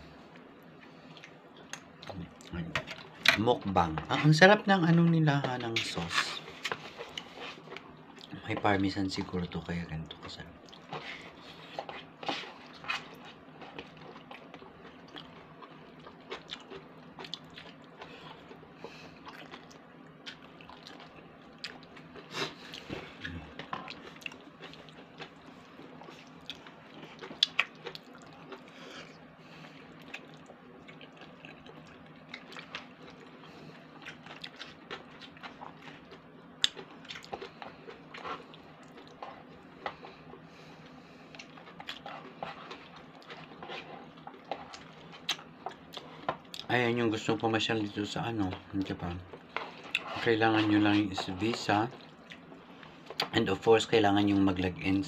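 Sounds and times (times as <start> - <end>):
steady low hum: 0.0 - 55.0
slurping noodles and chewing: 10.7 - 46.7.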